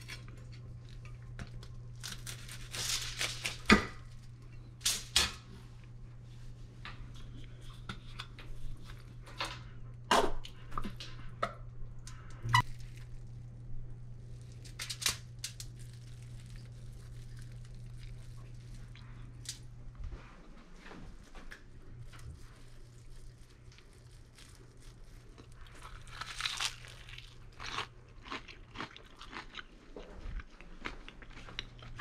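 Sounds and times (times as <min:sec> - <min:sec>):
aluminium foil crinkling: 0:00.0 - 0:05.3, 0:12.6 - 0:19.7, 0:21.4 - 0:27.8
steady low hum: 0:00.0 - 0:32.0
toasted bread crust crackling: 0:12.6 - 0:19.6, 0:21.9 - 0:27.8.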